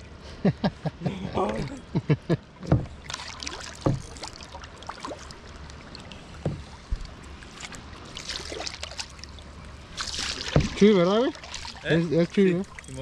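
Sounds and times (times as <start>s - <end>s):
waves lapping against kayak hull: 2.5s - 13.0s
light water splashes: 2.6s - 13.0s
water slapping on hull: 2.6s - 13.0s.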